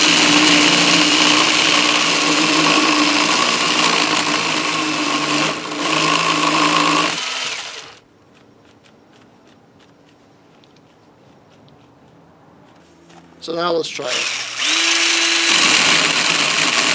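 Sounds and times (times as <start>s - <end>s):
drill chainsaw cutting wood: 0.0s - 8.0s, 14.0s - 16.9s.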